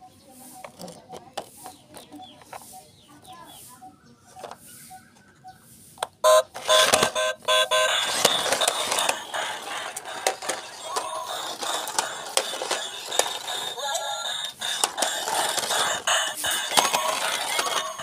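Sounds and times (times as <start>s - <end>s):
electronic beeping tones: 6.2s - 9.4s
toy car motor whirring: 6.3s - 18.0s.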